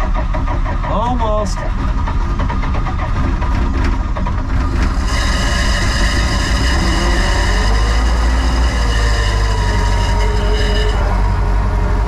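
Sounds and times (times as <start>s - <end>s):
diesel engine cranking and starting: 0.0s - 12.0s.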